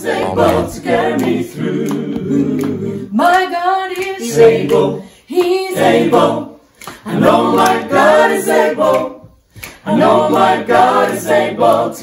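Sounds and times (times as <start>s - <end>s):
group singing a cappella: 0.0s - 12.0s.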